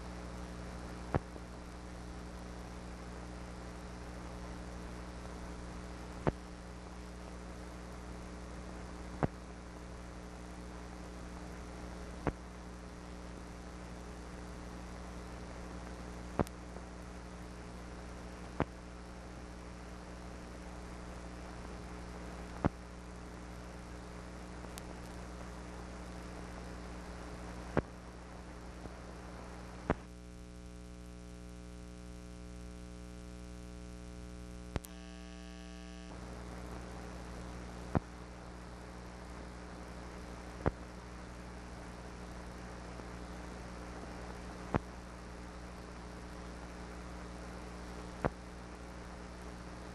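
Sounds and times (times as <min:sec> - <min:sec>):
mains hum and hiss: 0:00.0 - 0:49.9.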